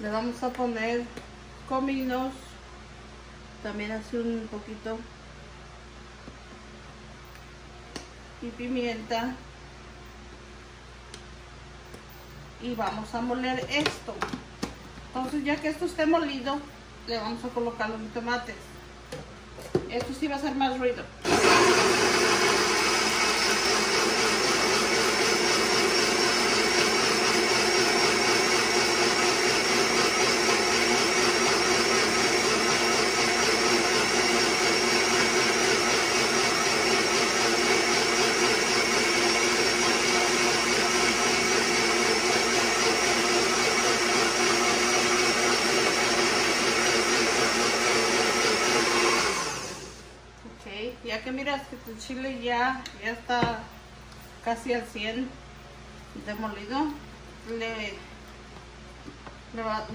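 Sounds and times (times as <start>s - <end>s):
electric blender running: 21.2s - 50.2s.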